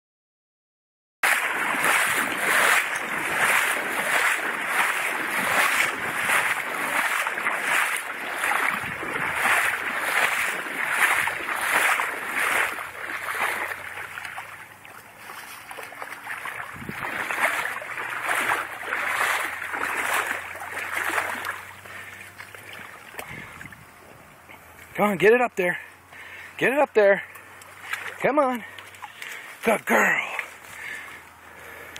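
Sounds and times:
footsteps wading through water: 1.2 - 24.8, 27.2 - 31.9.

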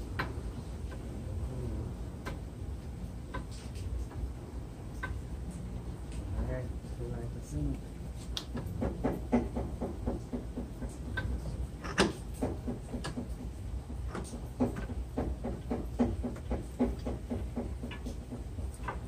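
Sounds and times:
steady low rumble: 0.0 - 15.2.

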